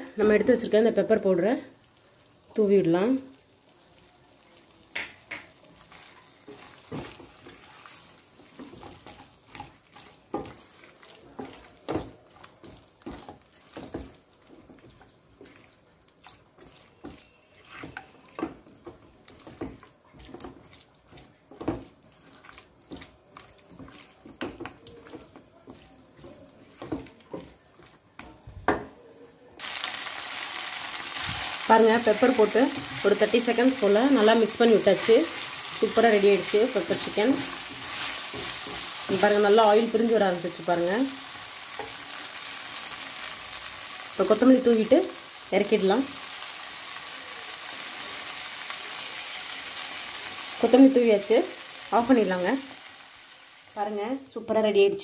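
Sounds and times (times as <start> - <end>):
spatula scraping a pan: 5.8 - 28.0.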